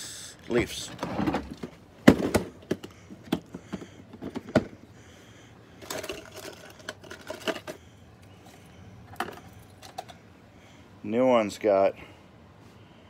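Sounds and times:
metal parts rattling in plastic bags: 0:05.8 - 0:07.8.

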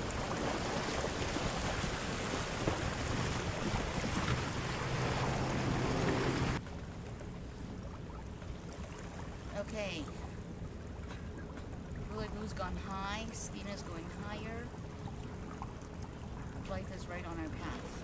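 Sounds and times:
wind buffeting microphone: 0:00.0 - 0:06.6
water rushing along hull: 0:00.0 - 0:18.0.

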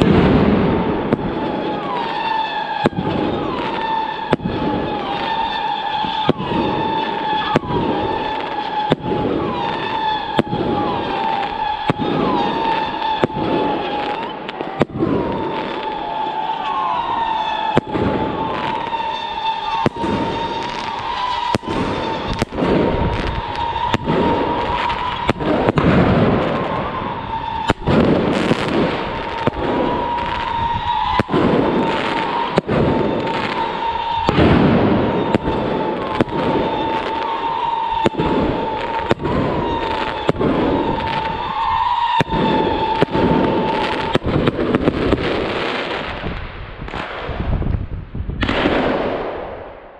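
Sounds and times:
fireworks bangs: 0:00.0 - 0:49.9
high whistle: 0:01.2 - 0:14.5, 0:15.2 - 0:25.8, 0:26.4 - 0:44.3.

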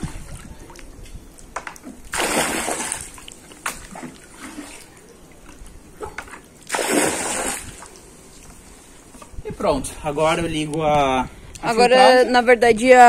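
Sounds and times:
water splashing and sloshing: 0:00.0 - 0:09.4
loud splashes: 0:02.1 - 0:05.0, 0:06.0 - 0:07.9.

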